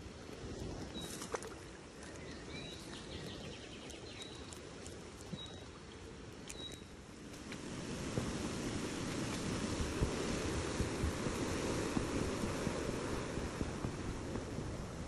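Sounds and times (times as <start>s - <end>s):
thin bird calls: 0.9s - 1.4s, 2.0s - 4.6s, 5.2s - 5.8s, 6.4s - 7.0s.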